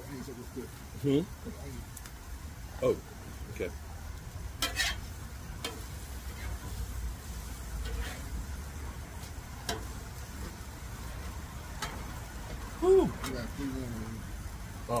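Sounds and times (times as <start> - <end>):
food sizzling on griddle: 0.0 - 15.0
metal spatula scraping steel: 4.6 - 6.8, 7.8 - 8.4.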